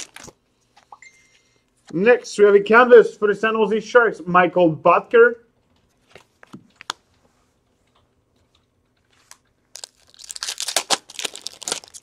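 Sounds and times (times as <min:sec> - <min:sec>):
cards rustling and crinkling: 0:00.0 - 0:00.4, 0:09.1 - 0:12.0.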